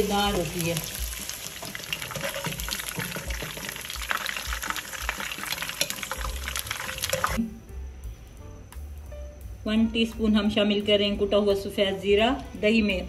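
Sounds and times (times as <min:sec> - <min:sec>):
vegetables frying in hot oil: 0:00.0 - 0:07.4.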